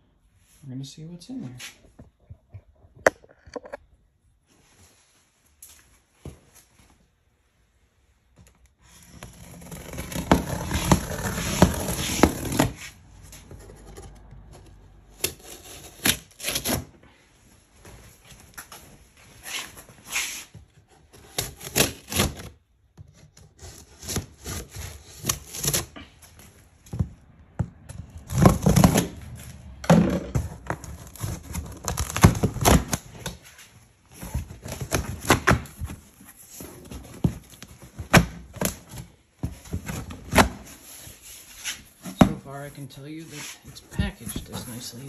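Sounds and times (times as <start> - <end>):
cardboard flaps scraping: 8.8 - 14.3.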